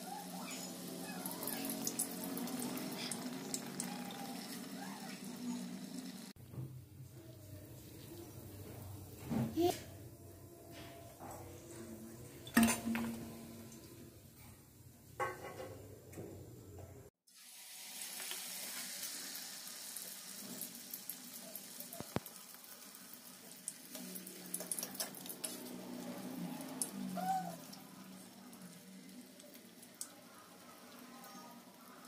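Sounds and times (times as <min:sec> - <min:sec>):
batter sizzling in hot oil: 0:00.0 - 0:06.4, 0:17.2 - 0:32.0.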